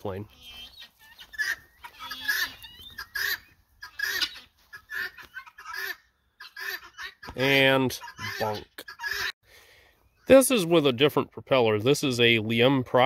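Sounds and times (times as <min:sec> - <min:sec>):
chickens clucking: 0:00.0 - 0:09.4.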